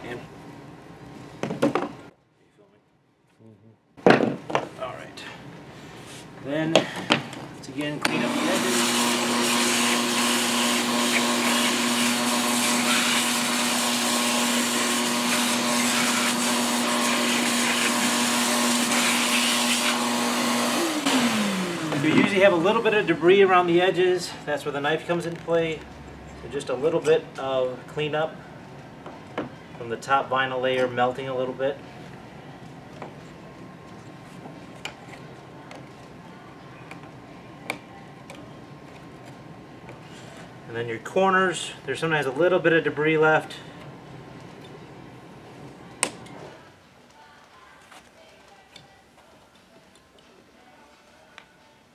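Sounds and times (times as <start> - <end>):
shop vacuum running: 5.8 - 25.9.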